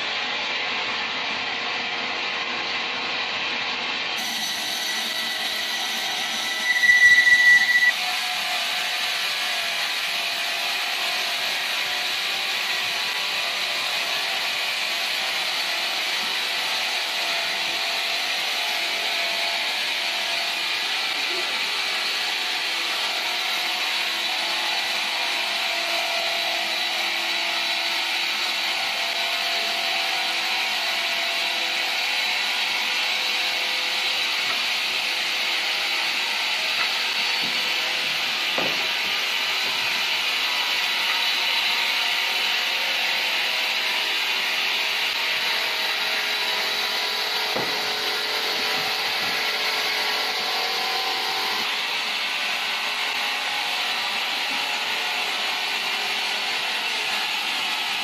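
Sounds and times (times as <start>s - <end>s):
band saw cutting log: 29.6s - 54.8s.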